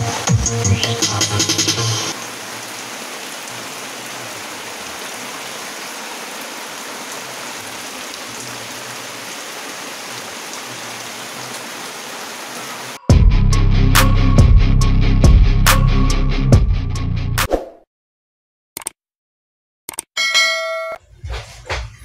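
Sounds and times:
heavy rain on concrete: 0.0s - 13.0s.

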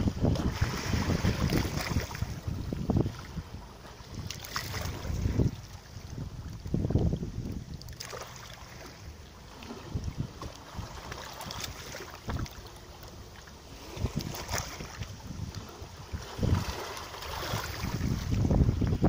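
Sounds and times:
small waves lapping on shore: 0.0s - 19.0s
wind rumble on microphone: 0.0s - 19.0s.

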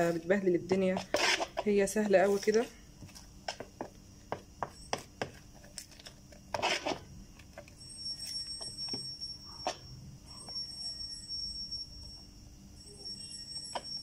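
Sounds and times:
wet spoon scrape: 0.0s - 2.7s, 6.5s - 7.1s.

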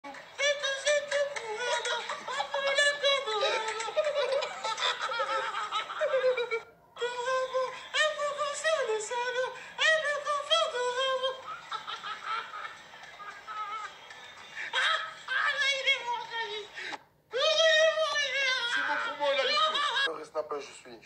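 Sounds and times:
men laughing hard: 1.5s - 6.7s, 11.1s - 15.8s, 18.6s - 20.1s.

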